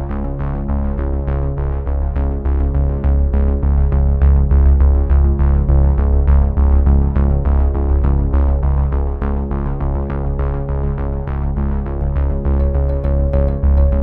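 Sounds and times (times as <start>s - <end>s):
electronic music with heavy bass: 12.3s - 14.0s.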